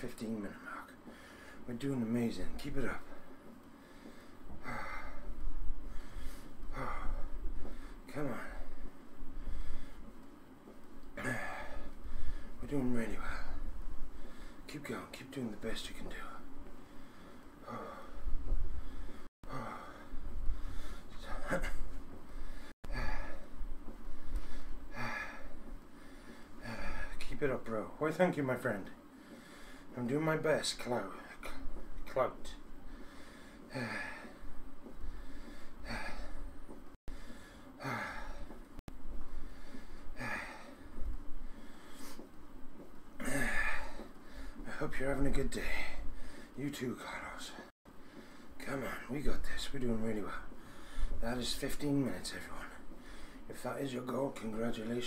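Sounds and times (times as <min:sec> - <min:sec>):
man breathing hard: 0:00.9 - 0:01.7, 0:03.0 - 0:12.6, 0:13.2 - 0:14.7, 0:16.4 - 0:27.3, 0:29.0 - 0:30.0, 0:32.6 - 0:44.9, 0:45.6 - 0:46.6, 0:47.5 - 0:48.6, 0:50.3 - 0:51.3, 0:52.7 - 0:53.5.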